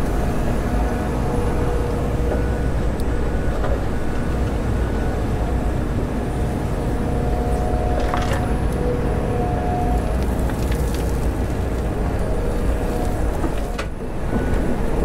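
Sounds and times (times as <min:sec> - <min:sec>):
excavator diesel engine drone: 0:00.0 - 0:15.0
faint steady whine: 0:00.0 - 0:15.0.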